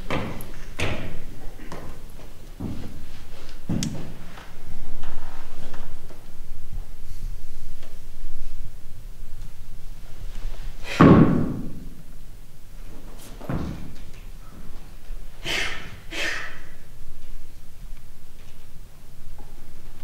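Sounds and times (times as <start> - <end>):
wooden staff thudding on stage floor: 10.9 - 11.9
short hissing sounds: 15.4 - 16.9.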